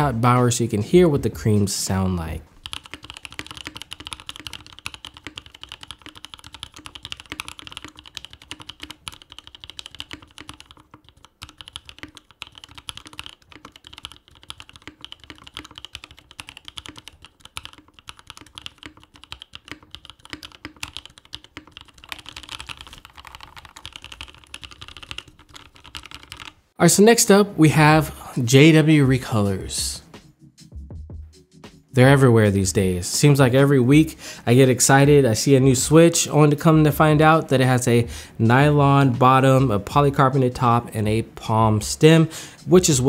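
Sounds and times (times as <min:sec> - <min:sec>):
fast typing on mechanical keyboard: 0:02.6 - 0:26.6.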